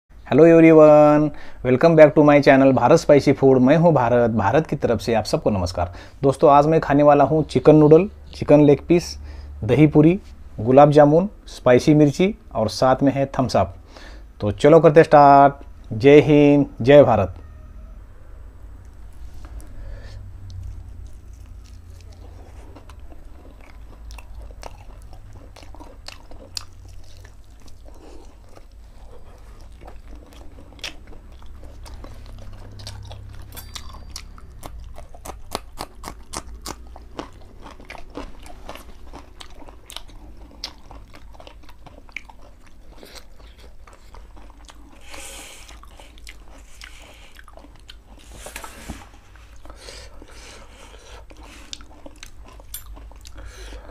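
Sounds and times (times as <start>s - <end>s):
steady low hum: 0.1s - 53.9s
person biting and chewing food: 18.8s - 53.9s.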